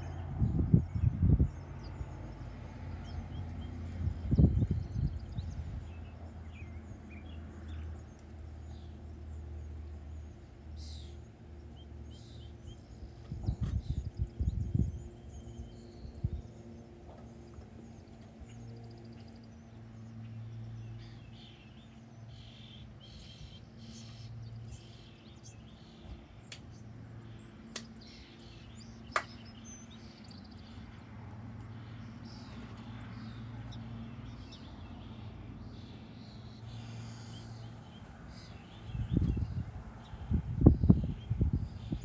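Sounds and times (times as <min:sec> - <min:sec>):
small birds chirping: 0:00.0 - 0:42.0
steady low hum: 0:00.0 - 0:42.0
sharp clicks: 0:27.7 - 0:27.9.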